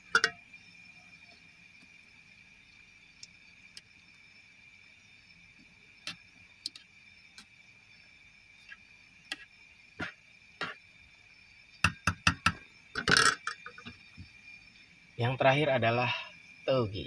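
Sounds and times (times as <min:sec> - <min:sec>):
strainer tapping against metal pot: 0:00.0 - 0:00.4.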